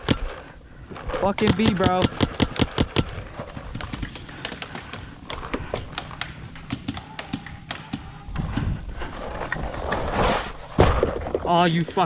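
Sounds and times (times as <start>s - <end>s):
paintball markers firing: 0.0s - 8.7s.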